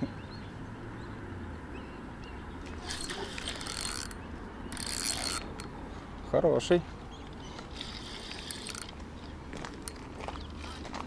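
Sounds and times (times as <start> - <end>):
fishing reel whirring: 2.8 - 5.7, 7.7 - 9.0.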